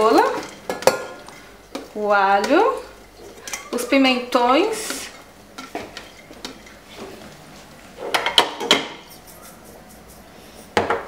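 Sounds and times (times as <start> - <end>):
kitchenware clattering: 0.0 - 7.2, 8.0 - 11.0.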